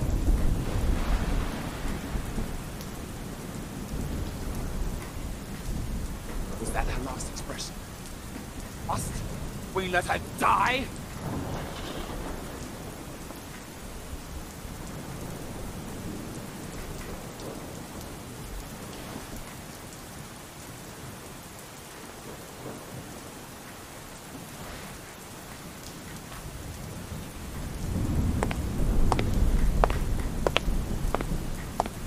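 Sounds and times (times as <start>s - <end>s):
thunder rumbling: 0.0s - 19.5s, 26.4s - 32.0s
pouring rain: 0.0s - 32.0s.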